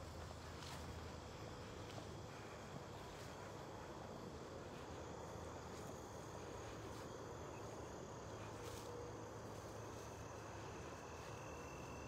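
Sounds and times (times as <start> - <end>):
crickets and insects trilling: 0.0 - 12.0
faint footsteps or rustles: 0.0 - 12.0.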